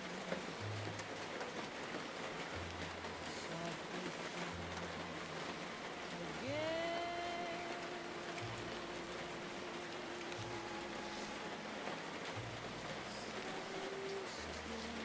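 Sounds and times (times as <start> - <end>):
muffled old-time music: 0.0 - 15.0
steady rain hiss: 0.0 - 15.0.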